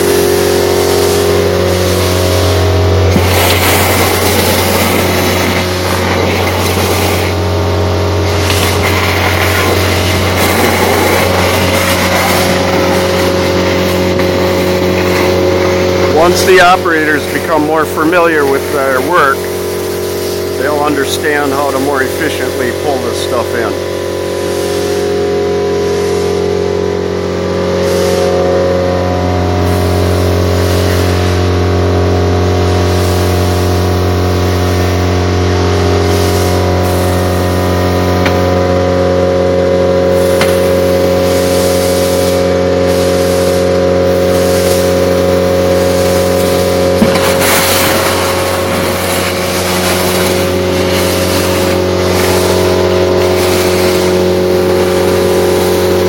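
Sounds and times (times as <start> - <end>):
air rushing through suction wand: 0.0 - 7.6, 27.5 - 28.8
vacuum blower humming: 0.0 - 56.0.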